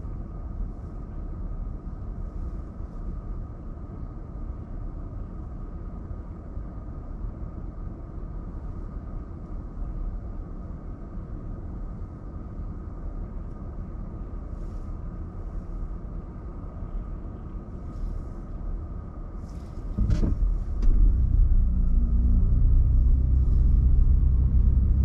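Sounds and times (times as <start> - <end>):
car engine and road noise: 0.0 - 25.0.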